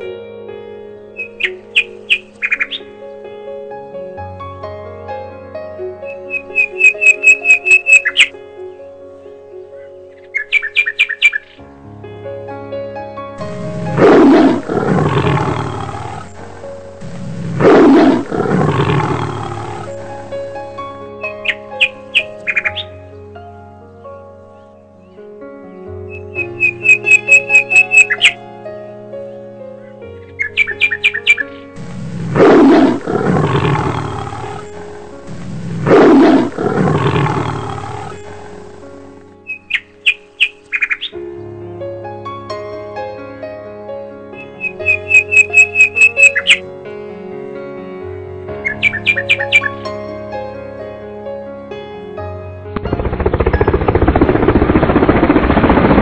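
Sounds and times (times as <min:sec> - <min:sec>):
background music: 0:00.0 - 0:55.6
tiger roaring: 0:13.4 - 0:20.4, 0:31.8 - 0:39.1.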